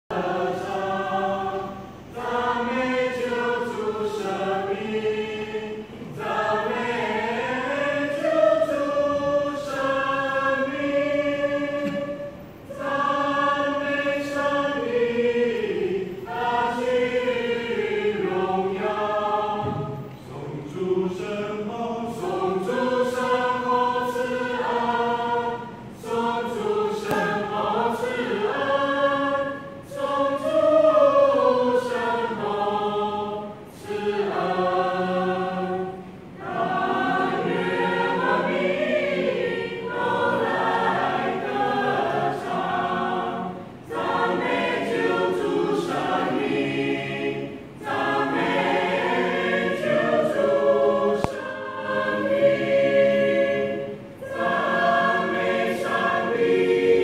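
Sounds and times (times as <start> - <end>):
choir singing a hymn: 0.1 - 57.0.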